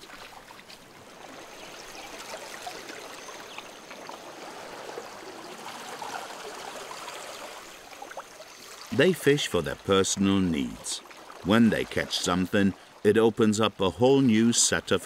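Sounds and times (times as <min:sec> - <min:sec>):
sea water lapping: 0:00.0 - 0:13.2.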